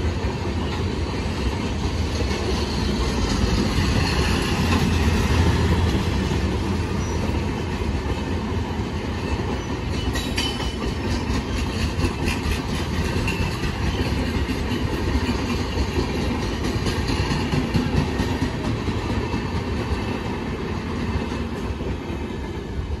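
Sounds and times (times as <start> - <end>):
wheels clicking over rail joints: 0.0 - 22.6
train wheels rushing on rail: 0.0 - 23.0.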